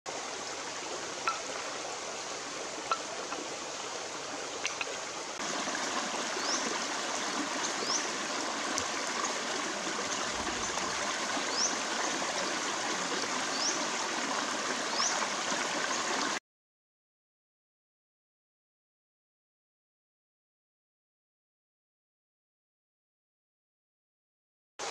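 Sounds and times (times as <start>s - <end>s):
stream running over rocks: 0.1s - 16.4s.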